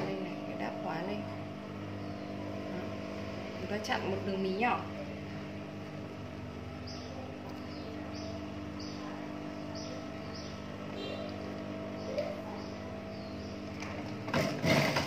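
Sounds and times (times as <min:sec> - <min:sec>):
sewing machine motor hum: 0:00.0 - 0:15.0.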